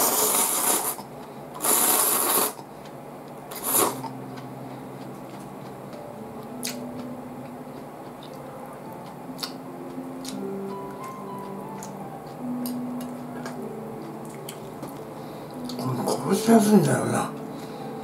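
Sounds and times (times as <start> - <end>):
person slurping noodles: 0.0 - 1.0, 1.6 - 2.6, 3.5 - 4.1
faint background music: 0.0 - 18.0.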